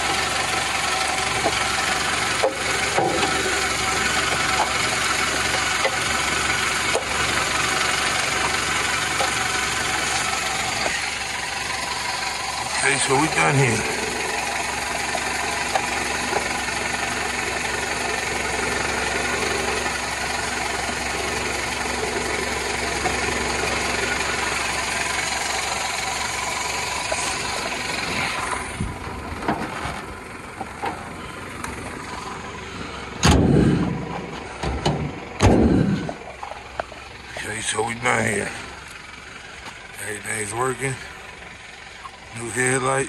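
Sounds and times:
car engine idling: 0:00.0 - 0:43.0
car hood thumping shut: 0:33.2 - 0:33.9, 0:34.7 - 0:35.8.

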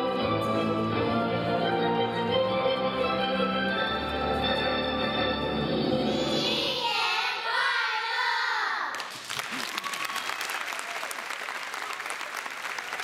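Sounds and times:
audience applause: 0:09.0 - 0:13.0.

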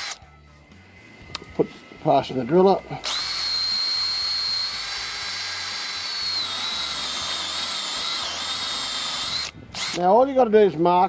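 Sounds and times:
cordless drill motor whine: 0:00.0 - 0:00.2, 0:02.4 - 0:10.1.

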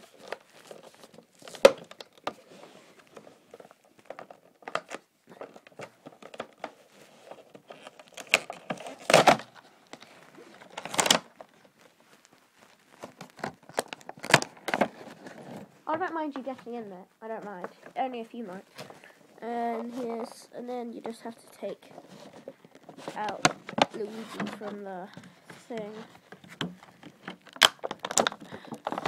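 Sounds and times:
plastic packaging crinkling: 0:00.0 - 0:16.5, 0:17.2 - 0:29.0
sharp plastic crack: 0:00.1 - 0:02.4, 0:03.6 - 0:11.6, 0:12.9 - 0:15.6, 0:21.0 - 0:29.0.

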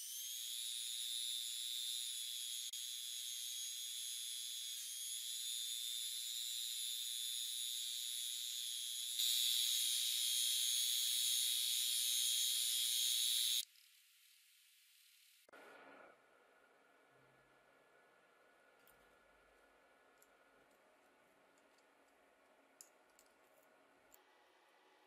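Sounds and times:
rotary tool grinding steel: 0:00.0 - 0:13.6.

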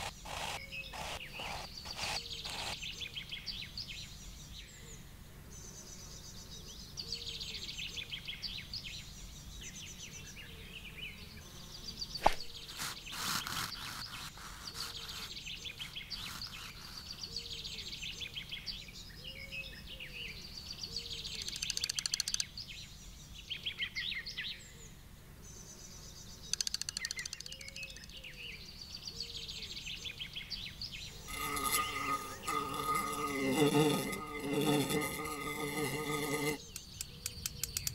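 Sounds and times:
birds singing and trilling: 0:00.0 - 0:37.9
low outdoor background: 0:00.0 - 0:37.9
sharp click: 0:26.5 - 0:28.0, 0:36.7 - 0:37.9.

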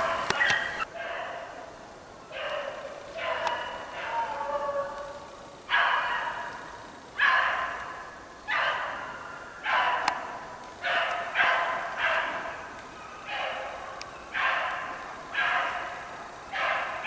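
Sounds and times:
hounds baying: 0:00.0 - 0:01.7, 0:02.3 - 0:17.0.

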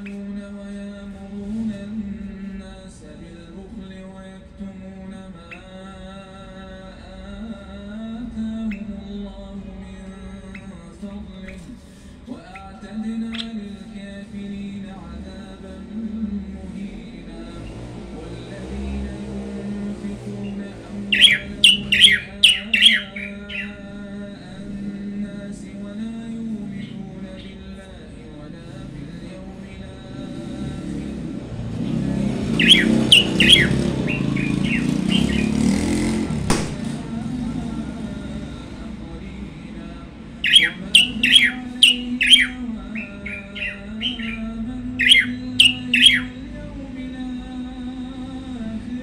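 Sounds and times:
small songbird singing: 0:05.4 - 0:05.9, 0:08.6 - 0:09.0, 0:10.4 - 0:15.5, 0:17.5 - 0:38.6, 0:40.4 - 0:47.6
songbird sharp calls: 0:20.5 - 0:23.8, 0:32.5 - 0:36.9, 0:40.4 - 0:46.4.

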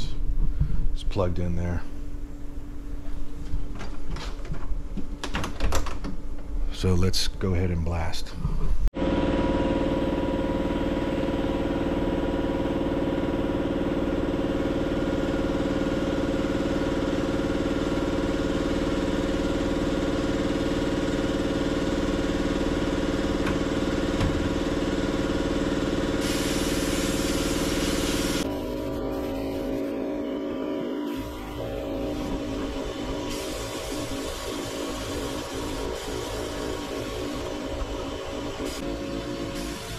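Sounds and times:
vacuum whining: 0:09.0 - 0:39.9
sandblasting air hiss: 0:26.1 - 0:29.8, 0:31.1 - 0:39.9.

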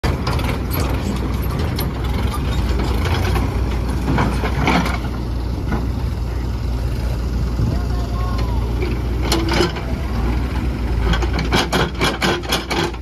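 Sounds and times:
knocks and rattles: 0:00.0 - 0:06.0, 0:11.0 - 0:13.0
diesel engines rumbling: 0:00.0 - 0:13.0.

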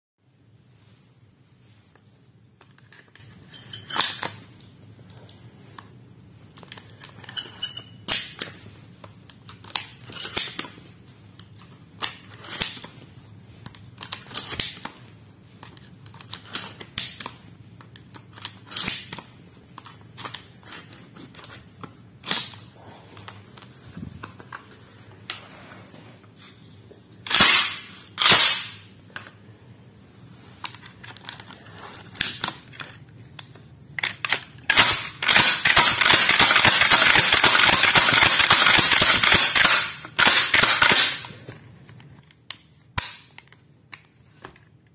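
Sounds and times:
shells clicking into shotgun: 0:34.0 - 0:41.3.

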